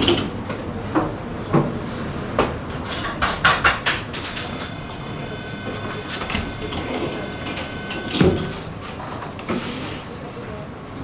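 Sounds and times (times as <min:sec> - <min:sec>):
high electronic warning tone: 0:04.2 - 0:08.7.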